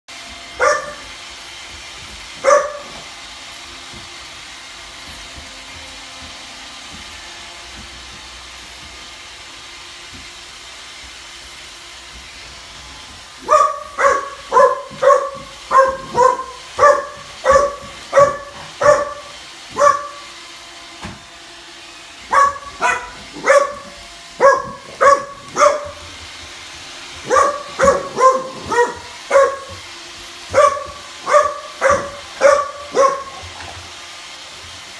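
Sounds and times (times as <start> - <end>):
robot vacuum humming: 0.1 - 34.9
puppy barking: 0.6 - 1.1, 2.4 - 3.1, 13.4 - 20.3, 22.3 - 26.2, 27.2 - 29.8, 30.5 - 33.8.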